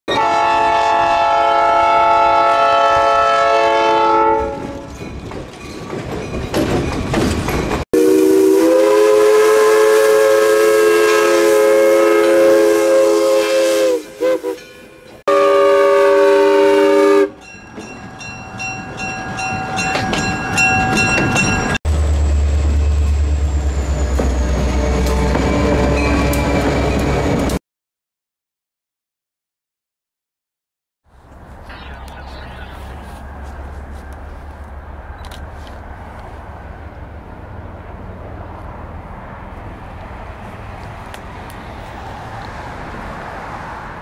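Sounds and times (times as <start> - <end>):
steam whistle blowing: 0.1 - 4.7, 8.0 - 14.7, 15.3 - 17.4
locomotive air horn chord: 0.1 - 4.9, 8.0 - 14.7, 15.3 - 17.5
passing train rumble: 0.1 - 27.6, 31.1 - 44.0.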